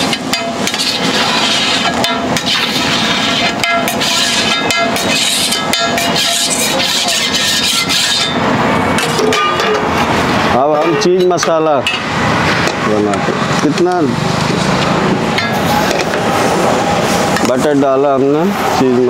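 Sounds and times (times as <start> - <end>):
metal spatula scraping griddle: 0.0 - 9.9
hot surface hissing: 0.0 - 10.5, 14.6 - 17.6.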